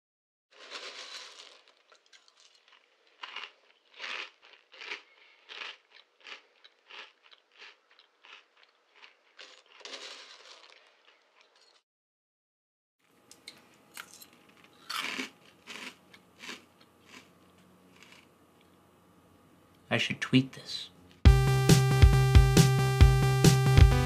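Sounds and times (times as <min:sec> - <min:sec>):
crinkly rustling: 0:00.5 - 0:05.7, 0:09.0 - 0:11.8
crunchy chewing: 0:00.5 - 0:11.8, 0:13.3 - 0:18.8.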